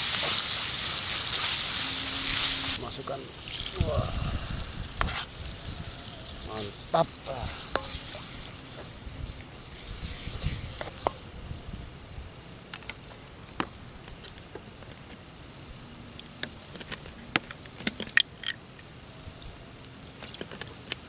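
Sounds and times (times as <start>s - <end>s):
wood fire crackling: 0.0s - 19.1s
faint hiss: 0.0s - 21.0s.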